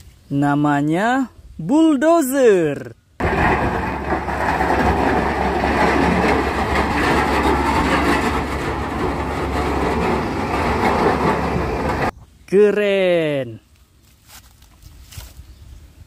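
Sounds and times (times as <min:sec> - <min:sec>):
toy bulldozer rumbling clatter: 0:03.2 - 0:12.1.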